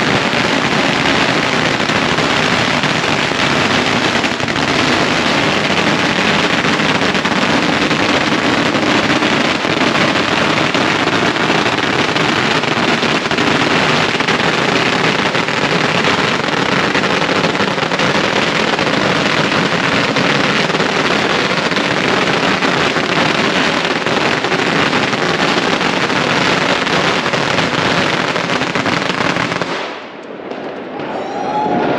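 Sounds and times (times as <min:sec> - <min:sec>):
firecrackers crackling: 0:00.0 - 0:31.9.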